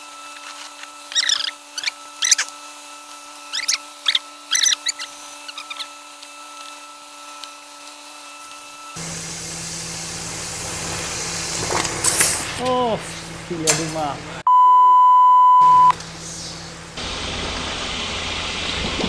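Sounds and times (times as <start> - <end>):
pump squeaking: 0.2 - 6.7
steady hum: 8.8 - 14.6, 15.3 - 18.8.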